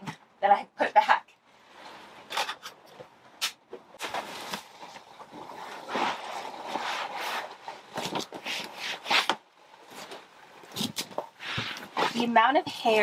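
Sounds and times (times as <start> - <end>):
cloth scrubbing over fabric and vinyl: 4.0 - 13.0.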